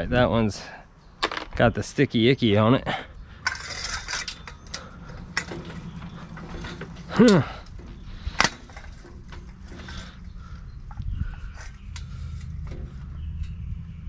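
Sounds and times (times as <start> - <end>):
tools and metal parts rattling: 3.3 - 13.8.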